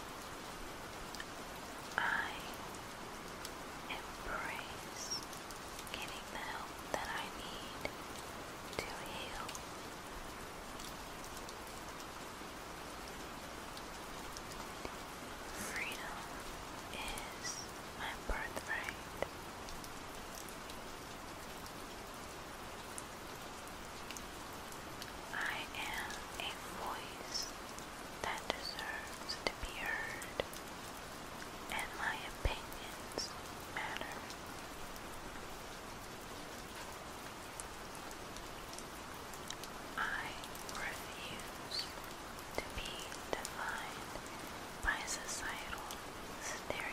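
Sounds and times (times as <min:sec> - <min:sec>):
faint whispery sounds: 0:00.0 - 0:46.9
falling rain: 0:00.0 - 0:46.9.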